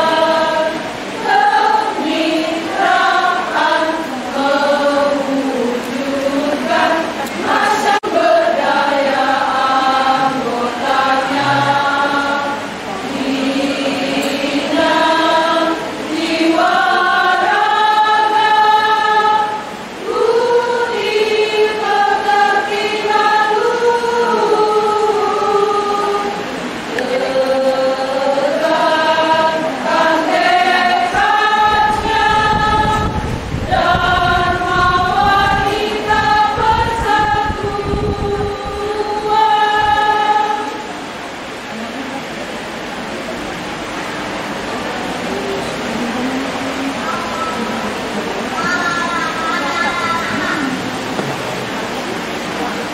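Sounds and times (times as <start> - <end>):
women's choir singing: 0.0 - 41.6, 44.4 - 48.6.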